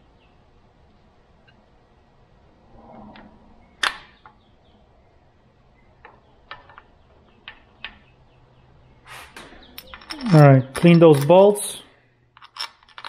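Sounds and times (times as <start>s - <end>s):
metal parts clicking: 9.2s - 11.6s, 12.4s - 13.0s.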